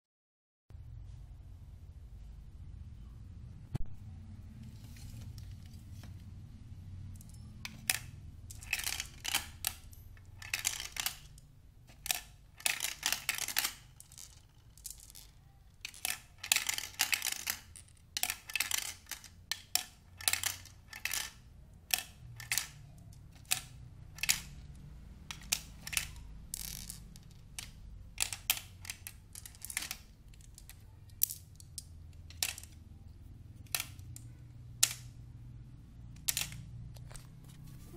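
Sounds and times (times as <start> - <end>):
plastic toy parts clicking: 7.1 - 35.2, 36.1 - 37.2.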